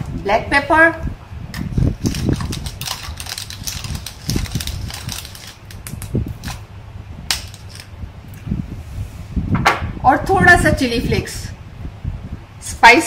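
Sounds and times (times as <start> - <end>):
pepper crackling and crunching: 1.6 - 6.7, 7.3 - 7.9.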